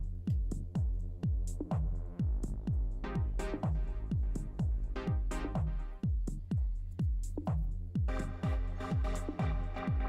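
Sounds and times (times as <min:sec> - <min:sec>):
electronic dance music: 0:08.1 - 0:10.0.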